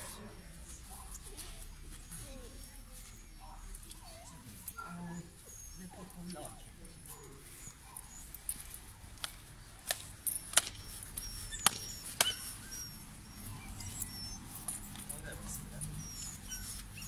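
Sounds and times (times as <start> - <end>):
sharp clicks or snaps: 9.2 - 10.8, 11.6 - 12.4.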